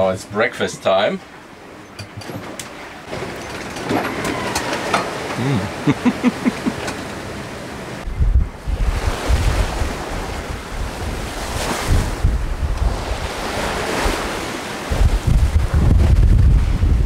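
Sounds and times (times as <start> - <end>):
sea waves washing: 2.4 - 17.0
wind buffeting the microphone: 8.0 - 17.0.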